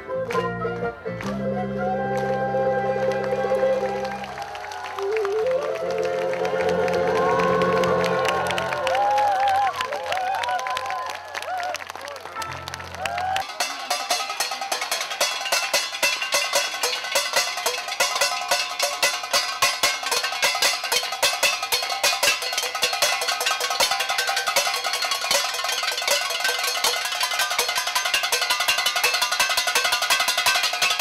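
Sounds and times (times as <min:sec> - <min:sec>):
metal pots struck with sticks: 0:13.4 - 0:31.0.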